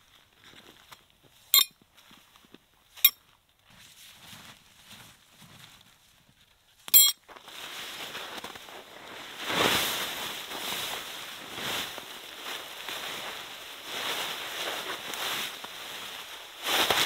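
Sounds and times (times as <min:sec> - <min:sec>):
tent fabric rustling and flapping: 0:03.6 - 0:06.3, 0:07.3 - 0:17.0
sharp clink: 0:06.9 - 0:07.2.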